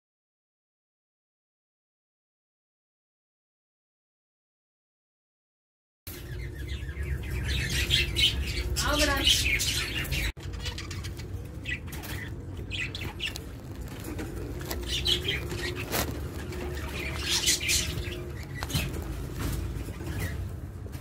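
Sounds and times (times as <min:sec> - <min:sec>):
budgerigars twittering: 0:06.1 - 0:20.6
steady low hum: 0:06.1 - 0:21.0.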